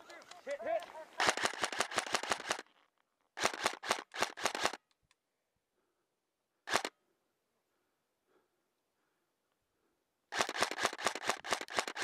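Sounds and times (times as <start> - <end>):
airsoft rifle firing full auto: 1.2 - 2.7, 3.4 - 4.8, 6.7 - 6.9, 10.3 - 12.0.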